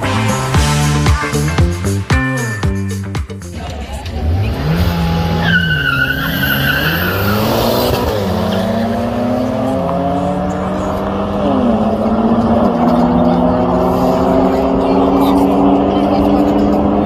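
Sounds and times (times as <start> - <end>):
car engines revving: 0.0 - 2.1, 3.1 - 17.0
tyres squealing: 5.3 - 7.7.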